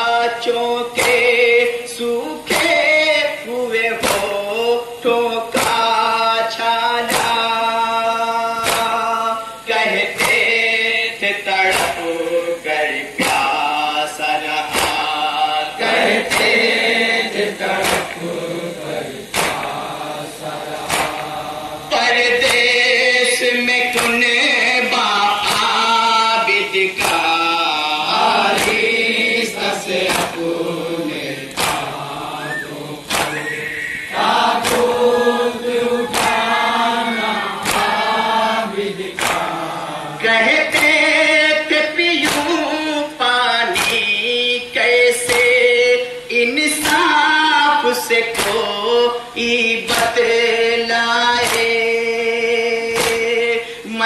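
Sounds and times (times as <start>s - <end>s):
men chanting together: 0.0s - 54.0s
hands striking chests: 19.3s - 19.8s, 20.9s - 21.3s, 33.0s - 33.4s, 34.6s - 35.0s.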